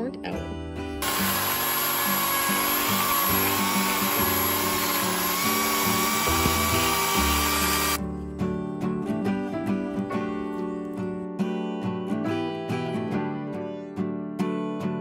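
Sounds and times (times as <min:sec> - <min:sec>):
chainsaw cutting log: 0:01.0 - 0:08.0.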